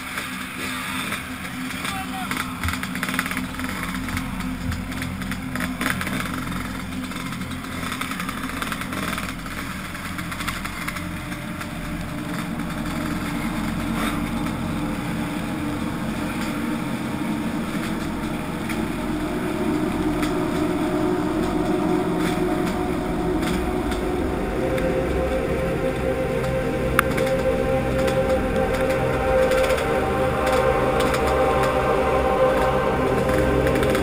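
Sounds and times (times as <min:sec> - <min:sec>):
dirt bike engine running: 0:00.0 - 0:34.0.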